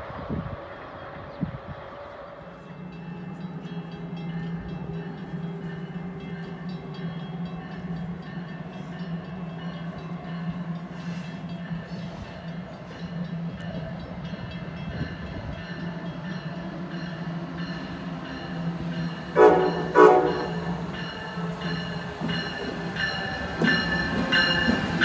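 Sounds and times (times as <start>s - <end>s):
electric locomotive humming: 0.0s - 25.0s
train horn blasts: 19.2s - 20.9s.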